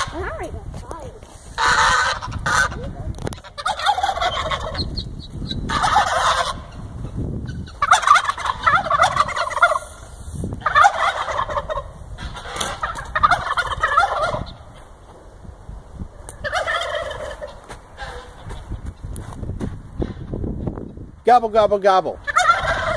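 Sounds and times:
turkey gobbling: 1.5 - 14.9, 16.1 - 18.7, 22.2 - 22.9.

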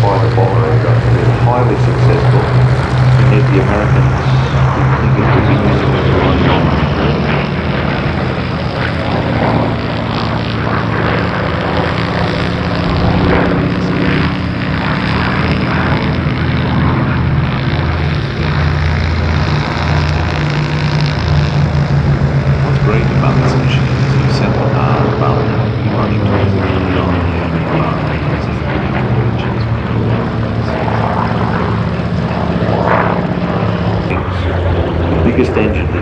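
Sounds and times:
propeller aircraft engine drone: 0.0 - 36.0.

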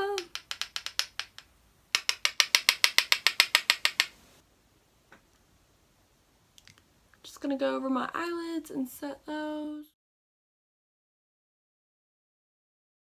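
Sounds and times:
brush clicking on plastic pot: 0.0 - 4.2.

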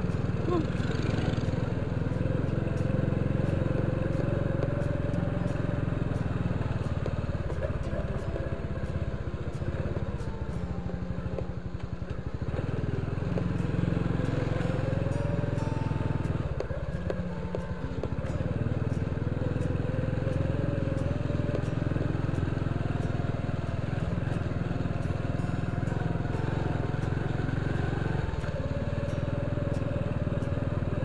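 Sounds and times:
small motorcycle engine running: 0.0 - 31.0.

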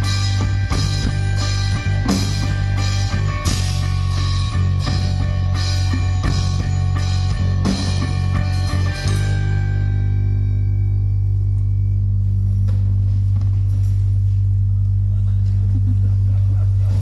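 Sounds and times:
drum kit with cymbal crashes: 0.0 - 10.0
electric guitars: 0.0 - 12.0
heavy bass note: 0.0 - 17.0.

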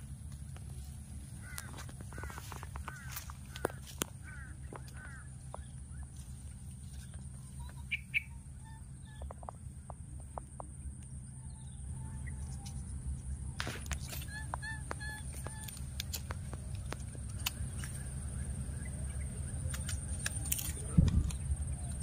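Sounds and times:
low steady rumble: 0.0 - 22.0
fowl clucking calls: 1.3 - 6.2, 7.2 - 10.0, 13.6 - 16.4.

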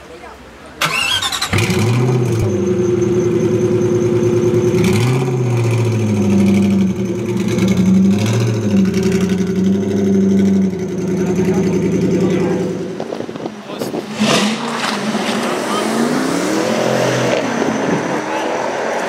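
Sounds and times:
car engine idling with throttle blips: 0.9 - 13.4.

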